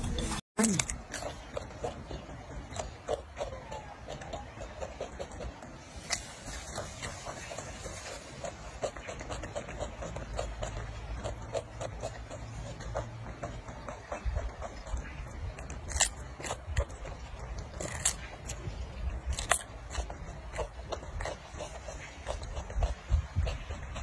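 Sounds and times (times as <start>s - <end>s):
monkey chewing crunchy cucumber: 0.0s - 24.0s.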